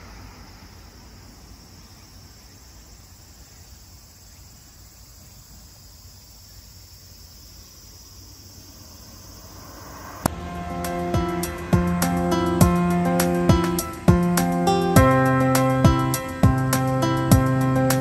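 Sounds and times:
insects chirring: 0.0s - 18.0s
low background rumble: 8.5s - 18.0s.

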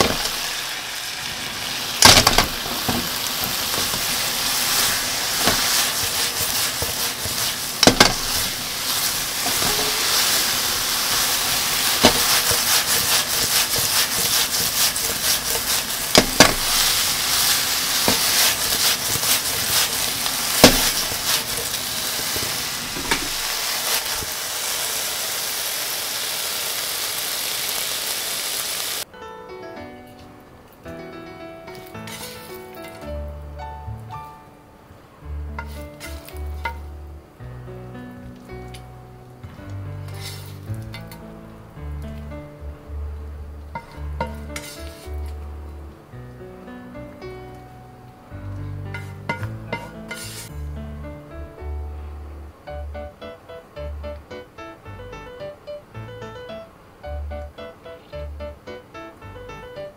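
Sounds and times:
food sizzling in frying pan: 0.0s - 29.1s, 31.8s - 33.1s, 35.5s - 37.2s, 38.5s - 41.3s, 43.7s - 45.6s, 48.9s - 50.6s.

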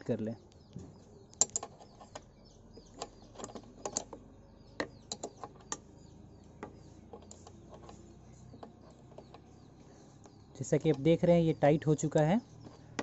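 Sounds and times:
spanner clicking against nut: 1.3s - 5.9s.

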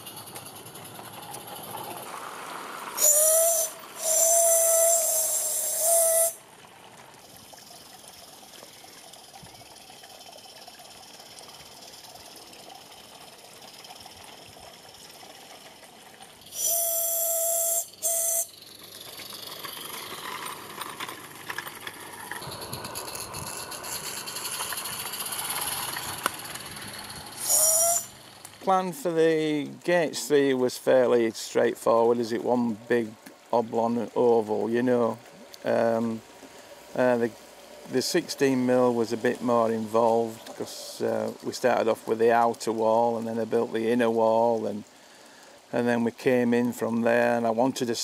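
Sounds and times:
steam engine hissing: 3.0s - 6.4s, 16.4s - 20.2s, 22.4s - 28.4s
steam whistle blasts: 3.0s - 6.4s, 16.5s - 18.6s, 27.4s - 28.2s.

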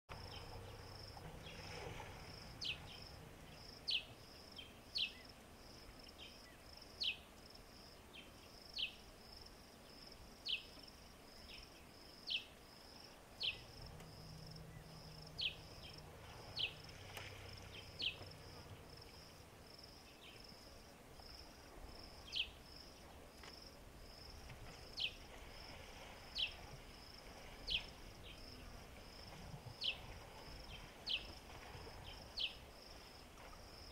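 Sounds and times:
insects trilling: 0.1s - 23.0s.

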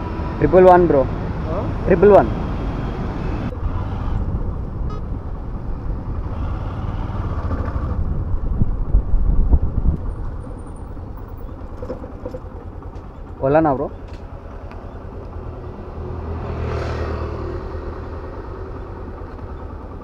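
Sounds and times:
road traffic noise: 0.0s - 20.0s
wind rumble on microphone: 1.2s - 12.5s.

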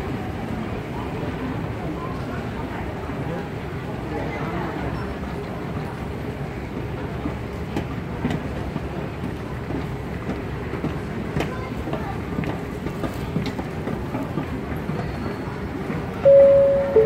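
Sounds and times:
murmur of voices: 0.0s - 17.0s
moving walkway low rumble: 5.4s - 17.0s.

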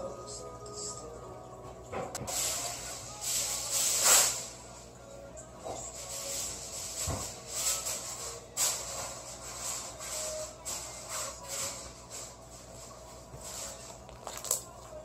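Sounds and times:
slime being stretched: 14.1s - 14.7s.

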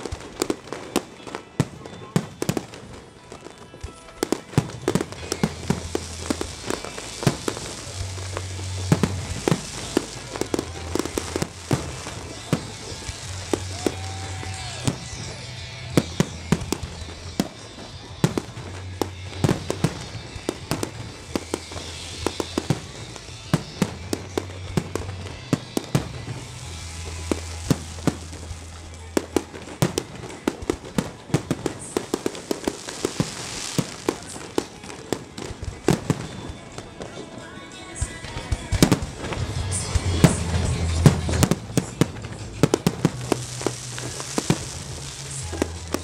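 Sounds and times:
fireworks bursting with sharp bangs: 0.0s - 46.0s
music with low bass: 4.9s - 29.9s, 38.8s - 46.0s.

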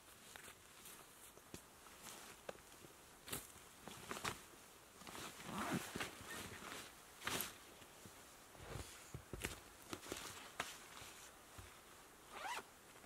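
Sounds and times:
fabric rustling: 3.3s - 13.0s.

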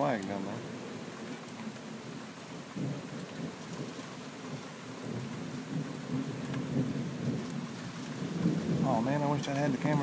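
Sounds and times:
steady rain: 0.0s - 10.0s
thunder rumbling: 0.0s - 10.0s.

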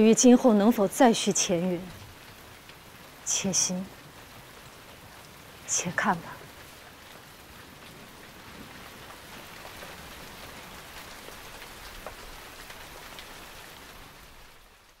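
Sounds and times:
sharp raindrop ticks: 0.0s - 15.0s
steady rain falling: 0.0s - 15.0s.

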